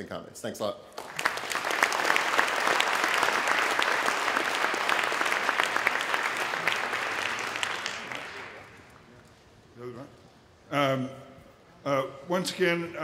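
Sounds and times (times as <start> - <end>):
audience applauding: 1.0 - 9.1.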